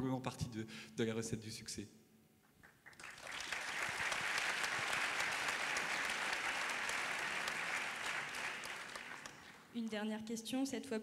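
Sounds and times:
audience applauding: 2.7 - 9.6.

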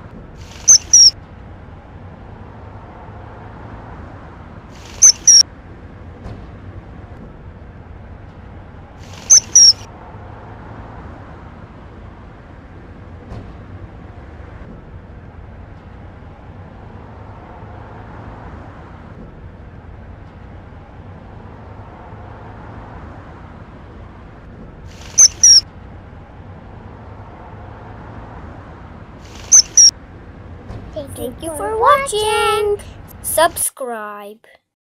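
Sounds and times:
kingfisher high-pitched calls: 0.7 - 1.2, 5.0 - 5.4, 9.3 - 9.8, 25.1 - 25.6, 29.4 - 29.9.

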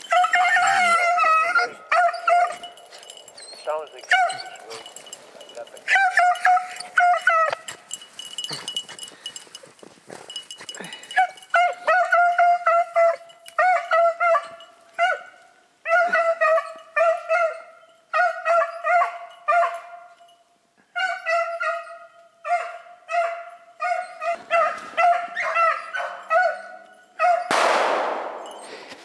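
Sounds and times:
dogs baying: 0.0 - 20.2, 21.0 - 27.5
gunshot: 27.5 - 29.0.

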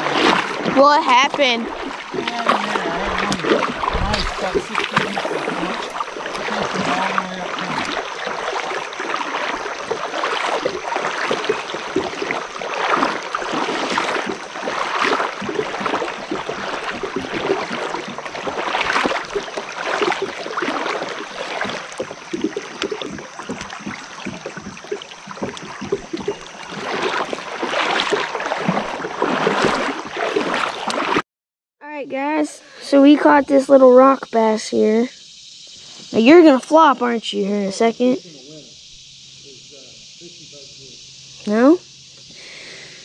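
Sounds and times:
river water rushing: 0.0 - 31.2.

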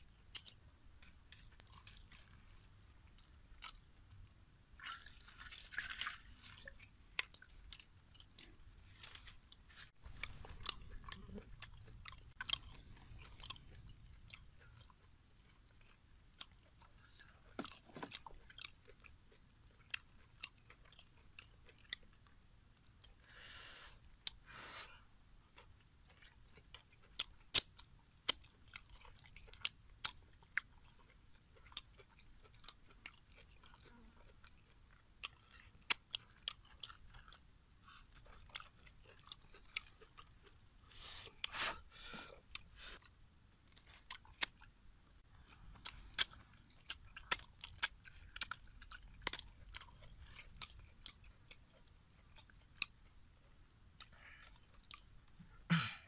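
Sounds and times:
person chewing wetly: 0.0 - 23.3, 23.9 - 24.4, 25.5 - 55.4.

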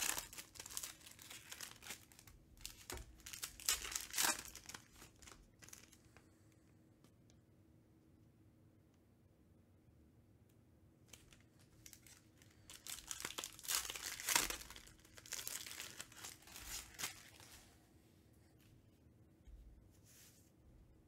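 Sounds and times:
wrapper tearing and crinkling: 0.0 - 6.1, 11.1 - 17.5.

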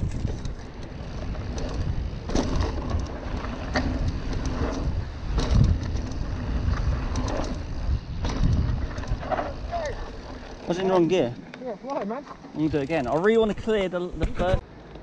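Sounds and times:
bike clattering over bumps: 0.0 - 13.5
wind and tyres on dirt: 0.0 - 15.0.

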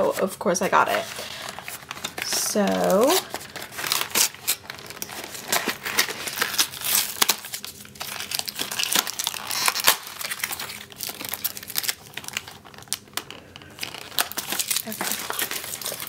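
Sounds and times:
plastic packaging crinkling: 0.0 - 16.0.

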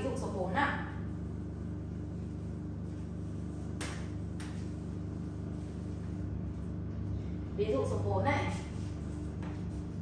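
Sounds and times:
low hum: 0.0 - 10.0
sponge wiping chalkboard: 2.4 - 6.7, 8.4 - 10.0.

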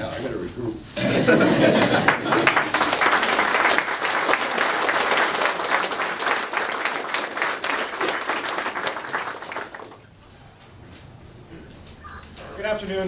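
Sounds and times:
crowd applauding: 1.4 - 10.1.

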